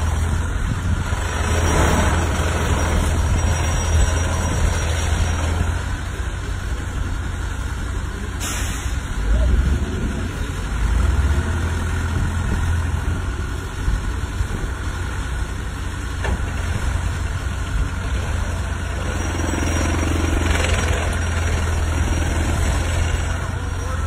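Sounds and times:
plate compactor humming: 0:15.5 - 0:24.0.

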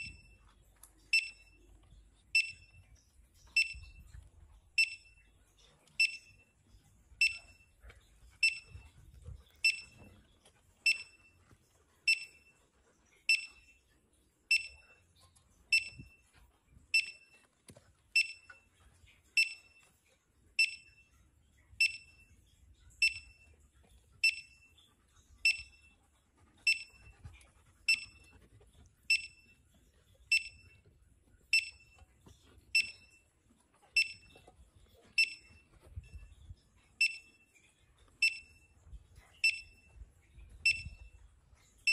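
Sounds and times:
metal detector beeping: 0:00.0 - 0:00.4, 0:01.0 - 0:05.3, 0:05.9 - 0:06.6, 0:07.2 - 0:07.8, 0:08.4 - 0:11.4, 0:12.0 - 0:12.6, 0:13.3 - 0:13.8, 0:14.5 - 0:15.0, 0:15.7 - 0:16.2, 0:16.9 - 0:17.5, 0:18.1 - 0:18.7, 0:19.4 - 0:19.9, 0:20.6 - 0:21.0, 0:21.8 - 0:22.3, 0:23.0 - 0:23.5, 0:24.2 - 0:24.8, 0:25.4 - 0:25.9, 0:26.6 - 0:27.2, 0:27.9 - 0:28.4, 0:29.1 - 0:29.6, 0:30.3 - 0:30.8, 0:31.4 - 0:32.1, 0:32.7 - 0:33.3, 0:33.9 - 0:34.4, 0:35.1 - 0:36.2, 0:37.0 - 0:37.5, 0:38.2 - 0:38.7, 0:39.4 - 0:40.0, 0:40.6 - 0:41.2.

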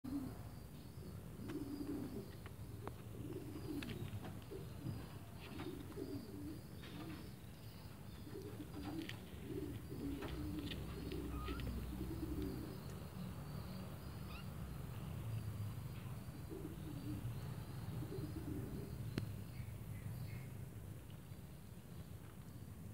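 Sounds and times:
low cooing calls: 0:00.1 - 0:13.3, 0:16.3 - 0:19.4.

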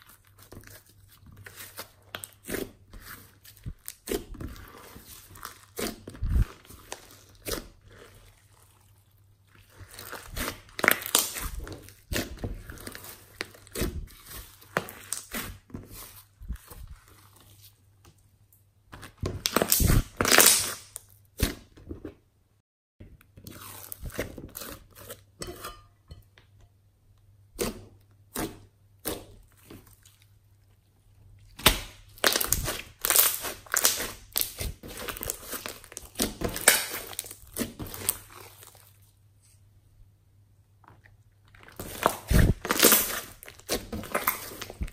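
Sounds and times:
hands squishing slime: 0:00.0 - 0:18.2, 0:18.9 - 0:21.7, 0:23.2 - 0:25.8, 0:27.5 - 0:39.6, 0:40.8 - 0:44.9
slime popping and crackling: 0:09.5 - 0:16.7, 0:19.0 - 0:21.5, 0:31.5 - 0:38.9, 0:41.5 - 0:44.9.

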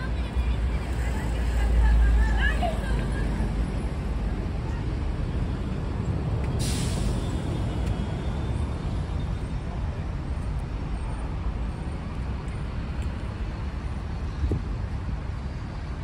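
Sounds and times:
road traffic rumble: 0:00.0 - 0:16.0
short sharp hiss: 0:06.6 - 0:07.4.

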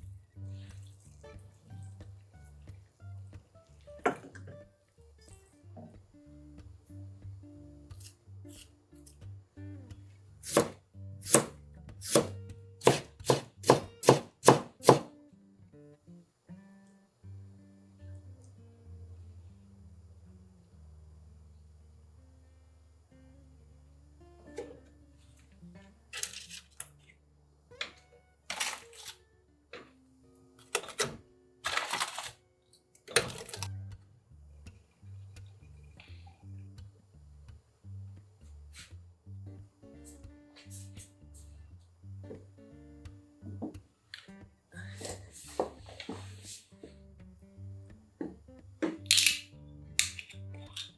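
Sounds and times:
soft acoustic guitar music: 0:00.0 - 0:14.4, 0:15.1 - 0:50.9.

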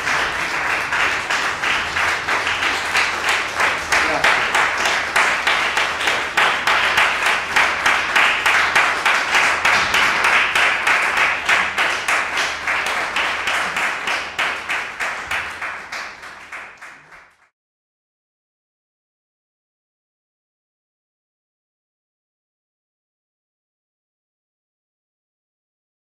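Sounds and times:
audience applauding: 0:00.0 - 0:17.5.

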